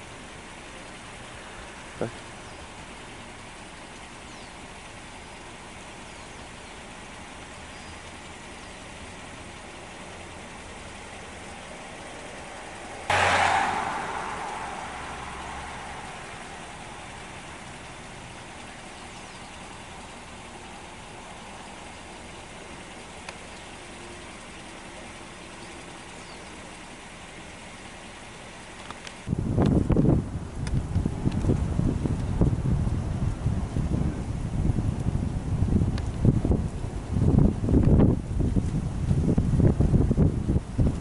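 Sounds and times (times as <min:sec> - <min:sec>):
steady traffic noise: 0:00.0 - 0:41.0
vehicle passing: 0:11.9 - 0:18.9.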